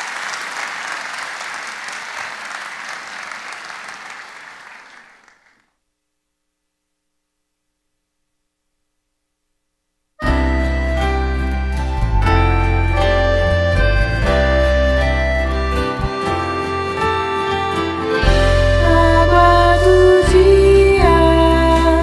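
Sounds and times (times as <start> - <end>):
applause: 0.0 - 5.7
instrumental music: 10.2 - 22.0.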